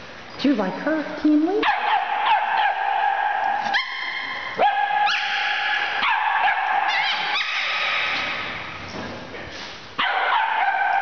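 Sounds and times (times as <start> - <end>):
puppies yelping and whining: 1.8 - 8.6.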